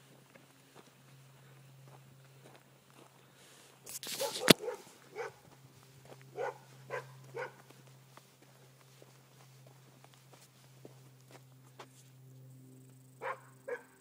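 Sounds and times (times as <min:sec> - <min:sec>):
dog barking: 0:04.1 - 0:05.5, 0:06.3 - 0:07.7, 0:13.2 - 0:14.0.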